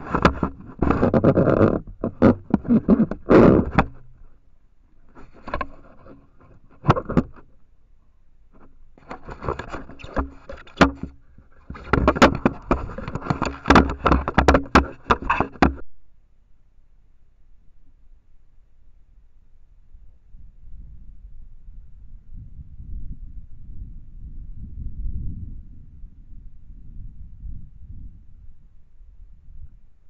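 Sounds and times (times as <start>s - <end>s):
scraping and rubbing on camera: 0.0s - 4.4s, 5.0s - 7.6s, 8.6s - 15.8s.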